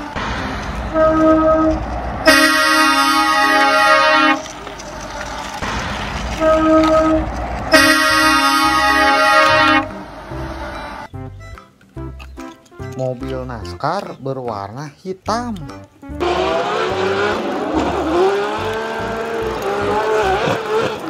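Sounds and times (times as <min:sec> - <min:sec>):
truck horn blasts: 0:00.0 - 0:04.6, 0:06.4 - 0:11.0.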